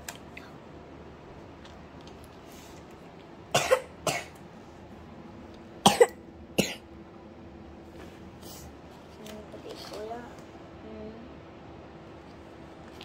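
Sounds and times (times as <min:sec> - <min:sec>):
person coughing: 0:03.5 - 0:04.4, 0:05.8 - 0:06.8.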